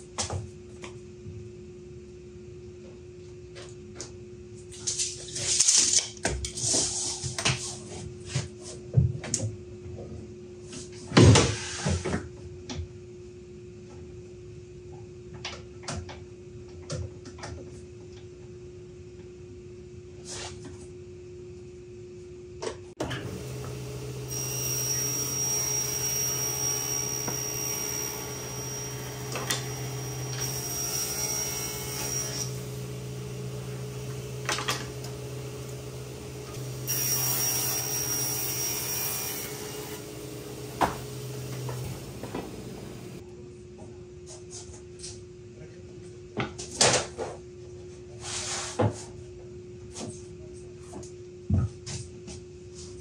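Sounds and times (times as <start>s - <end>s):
table saw cutting wood: 23.0s - 43.2s.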